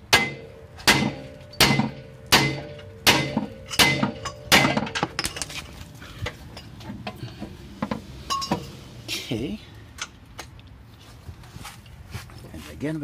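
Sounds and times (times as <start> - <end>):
hammer striking metal: 0.1 - 5.3.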